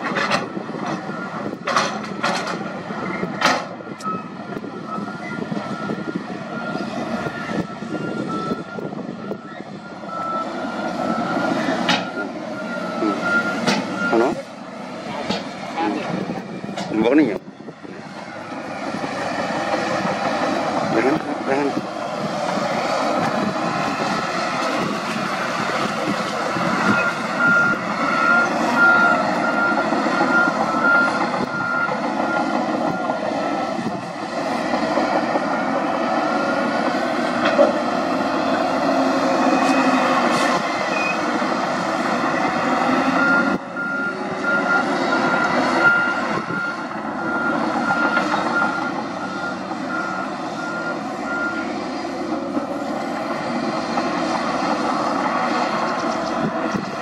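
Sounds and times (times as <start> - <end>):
diesel engines under load: 0.0 - 57.0
reversing alarm beeping: 1.0 - 2.3, 3.0 - 14.4, 18.2 - 19.0, 26.5 - 34.1, 35.4 - 36.9, 43.0 - 51.8.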